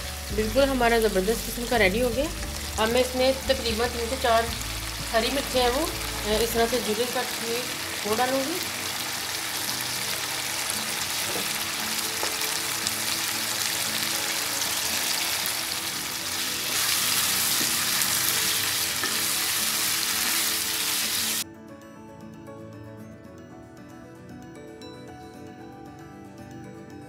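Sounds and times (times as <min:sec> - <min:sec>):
chicken sizzling in a wok: 0:00.0 - 0:01.7, 0:02.4 - 0:21.4
soft background music: 0:00.0 - 0:27.0.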